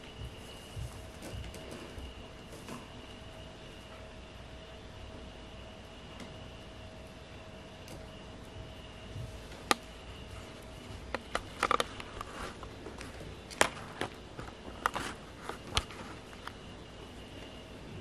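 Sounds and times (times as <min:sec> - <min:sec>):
faint steady hum: 0:00.0 - 0:18.0.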